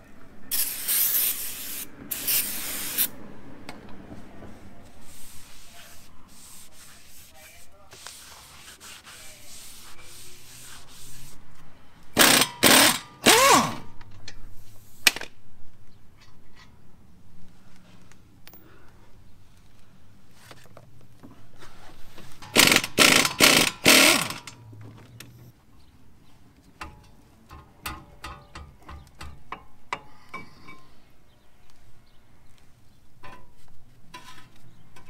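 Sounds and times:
pneumatic tool bursts: 0:00.5 - 0:03.1, 0:12.2 - 0:13.9, 0:22.4 - 0:24.6
cloth wiping metal: 0:04.5 - 0:11.4.

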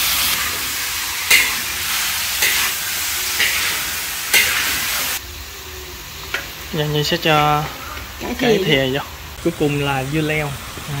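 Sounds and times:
vegetables sizzling in oil: 0:00.0 - 0:11.0
spatula scraping a pan: 0:01.2 - 0:05.2.

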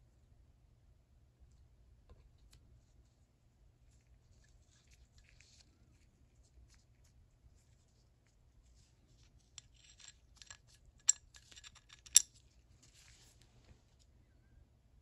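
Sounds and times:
metal ratchet pawls clicking: 0:09.9 - 0:12.3.

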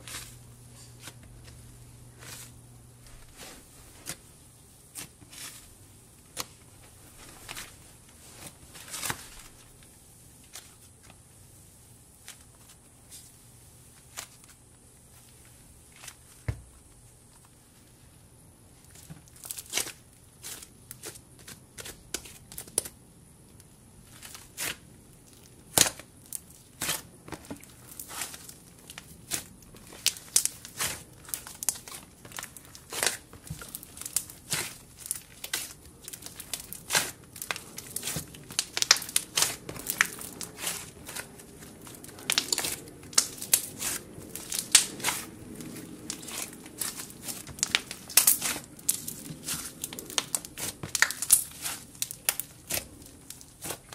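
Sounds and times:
slime clicking and crackling: 0:24.4 - 0:53.9.

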